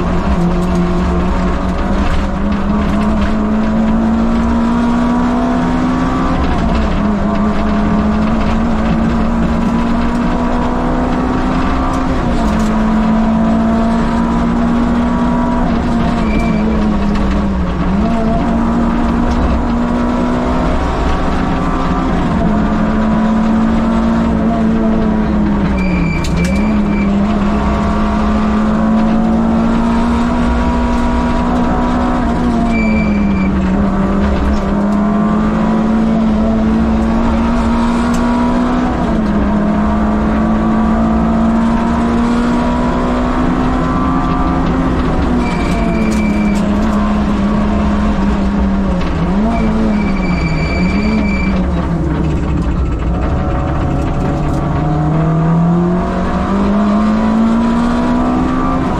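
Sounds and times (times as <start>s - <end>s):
rally car engine revving: 0.0s - 58.9s
brief high squeals: 49.6s - 51.6s.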